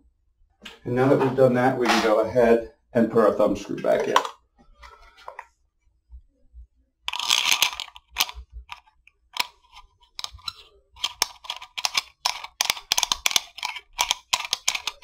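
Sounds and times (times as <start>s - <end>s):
metal thumb screw clicking: 7.1s - 8.4s, 10.2s - 15.0s.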